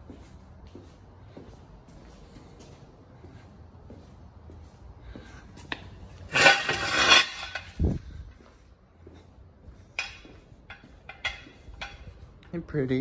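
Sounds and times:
metal jack stand clattering: 6.3 - 7.9, 10.0 - 12.2.

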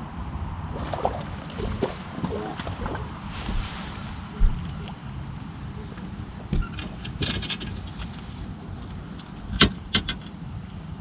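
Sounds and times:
low rumble: 0.0 - 5.0
sharp knocks and clicks: 9.5 - 10.3.

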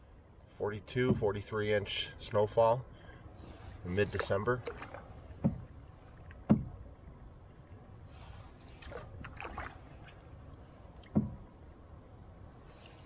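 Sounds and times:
paddle strokes thumping: 1.0 - 1.4, 3.9 - 6.9, 11.0 - 11.5
water dripping off paddle: 3.9 - 6.8, 8.6 - 11.4.

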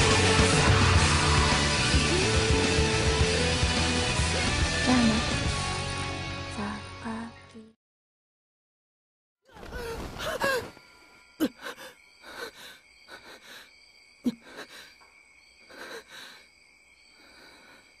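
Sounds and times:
person vocal sound: 4.8 - 5.4
person sighing: 9.5 - 13.7, 14.3 - 15.0
person gasping: 9.6 - 10.8, 11.4 - 13.7, 14.3 - 15.0, 15.7 - 16.4
faint high-pitched ringing: 10.6 - 12.9.

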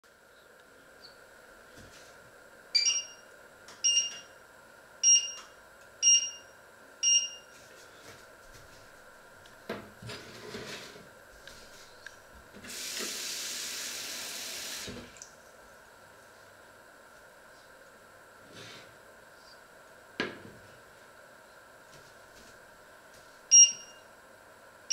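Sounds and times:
hob touch controls beeping: 2.8 - 3.2, 3.8 - 4.3, 5.0 - 7.5, 23.5 - 24.0.

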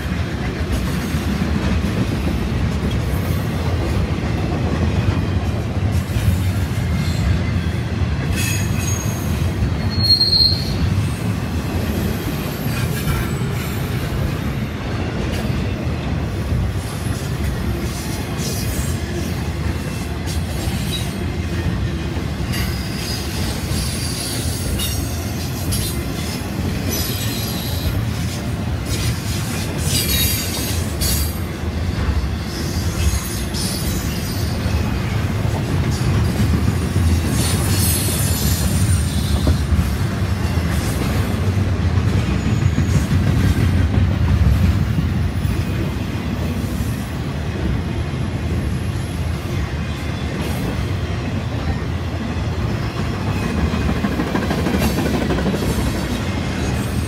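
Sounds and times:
freight train wheels rumbling: 0.0 - 57.0
high wheel squeal: 8.4 - 10.9.

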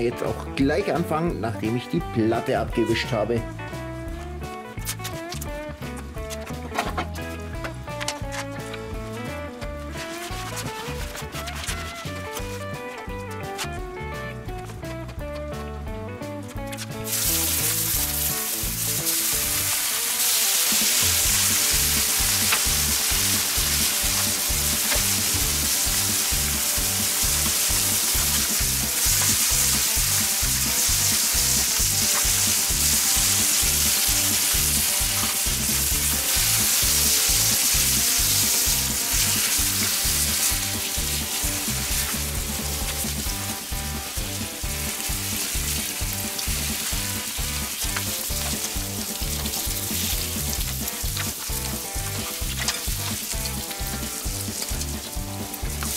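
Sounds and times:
bacon sizzling on a steel plate: 17.0 - 55.9.

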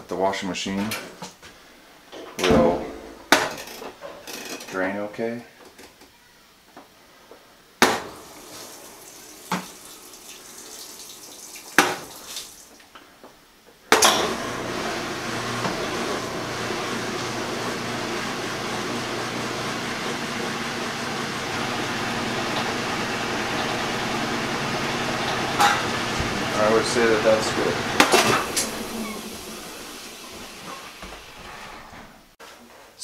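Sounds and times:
drain pump humming: 8.1 - 12.8, 14.0 - 32.0
rushing water: 21.5 - 31.4.

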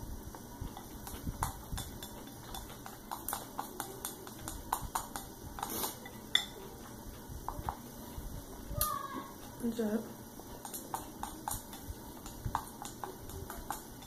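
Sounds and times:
chopsticks tapping ceramic bowl: 0.6 - 7.9, 10.5 - 14.0.

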